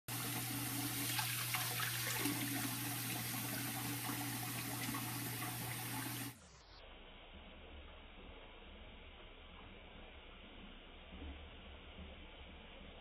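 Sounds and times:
water running and splashing: 0.1s - 6.4s
faint muffled hiss: 6.5s - 13.0s.

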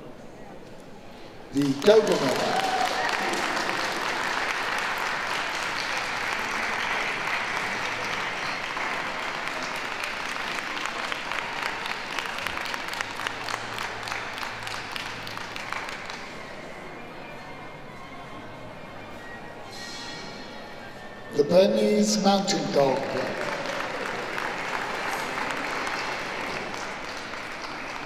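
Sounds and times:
audience applauding: 1.6s - 16.8s, 22.5s - 28.0s.

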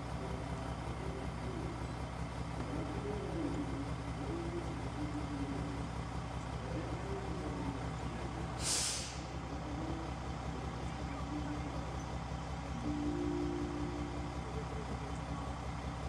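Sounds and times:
railcar engine humming: 0.0s - 16.0s
brake air hiss: 8.6s - 9.4s.

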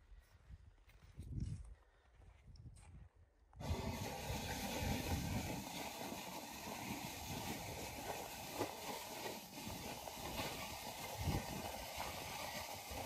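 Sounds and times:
small rubber wheels rolling: 3.6s - 13.0s
snow plow blade scraping snow: 3.6s - 13.0s.

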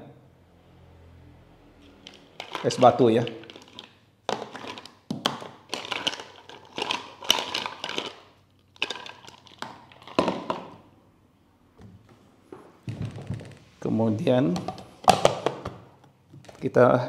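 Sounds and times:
ice cubes dropping into jar: 2.1s - 10.7s.

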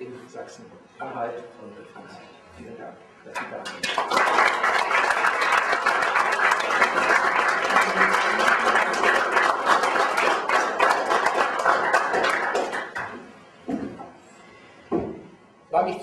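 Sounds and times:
people applauding: 3.4s - 13.3s.

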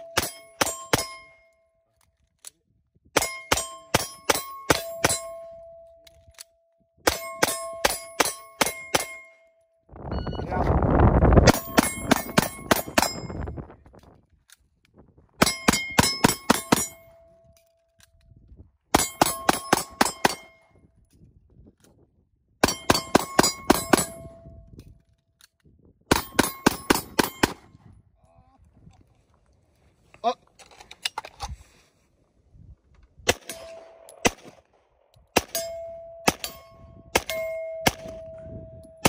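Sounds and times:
steel targets ringing: 35.4s - 39.0s.

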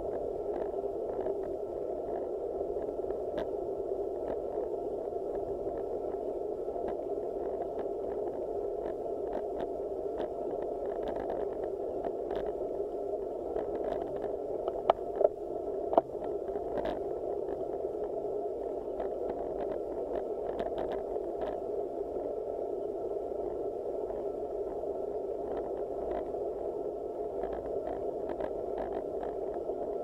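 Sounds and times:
faint ticks: 0.0s - 30.0s
muffled bike riding rumble: 27.3s - 30.0s.

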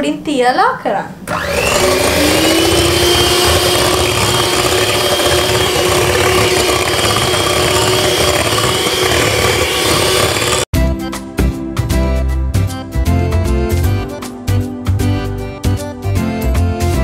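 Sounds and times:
electric hand mixer whine: 1.3s - 10.7s.

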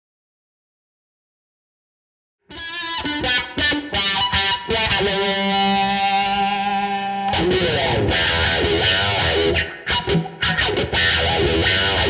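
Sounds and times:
overdriven electric guitar with wah: 2.5s - 12.0s.

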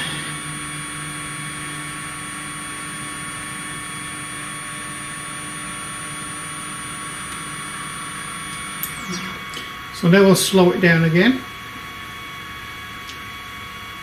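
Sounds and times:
stepper motors whining: 0.0s - 11.1s.

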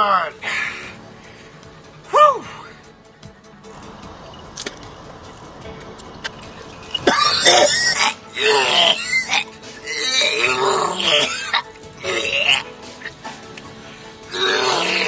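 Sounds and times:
man gagging and retching: 7.0s - 13.1s.

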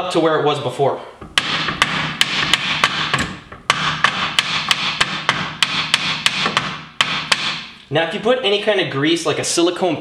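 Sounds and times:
hammer striking metal: 1.2s - 7.8s.

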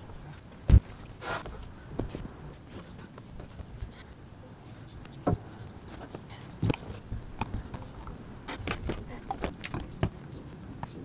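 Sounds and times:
wooden frame knocks and clunks: 8.5s - 10.2s.

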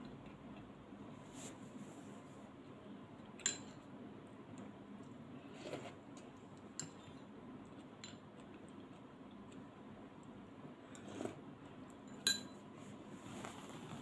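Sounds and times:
chopsticks and dishes clinking: 12.0s - 12.6s.

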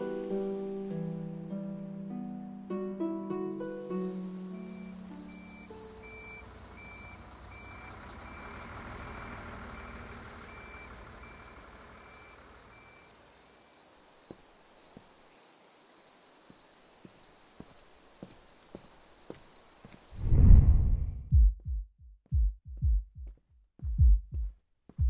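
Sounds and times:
bus engine running: 3.5s - 13.5s
crickets chirping: 3.5s - 20.3s
footsteps on pavement: 14.2s - 15.2s, 16.4s - 20.2s.

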